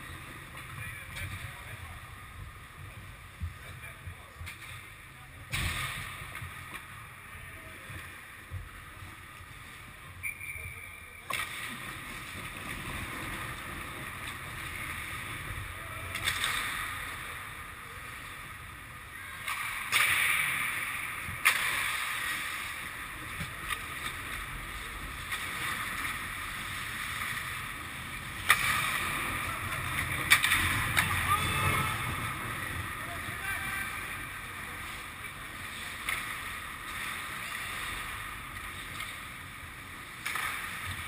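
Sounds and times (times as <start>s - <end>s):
stick hitting puck: 30.2s - 31.2s.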